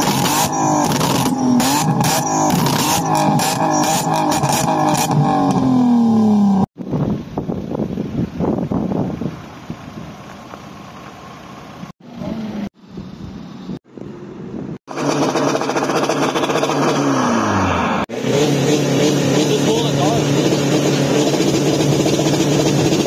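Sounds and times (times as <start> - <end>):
car engine revving: 0.0 - 6.7, 14.9 - 23.0.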